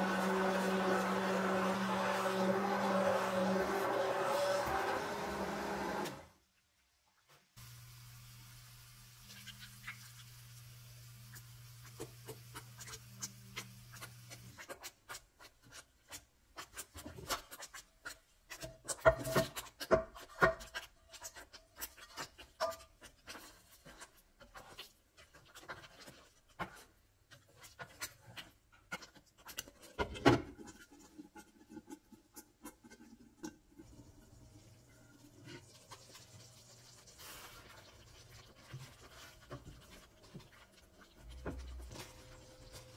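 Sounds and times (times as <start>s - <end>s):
metal spoon scraping a pan: 11.3s - 33.6s.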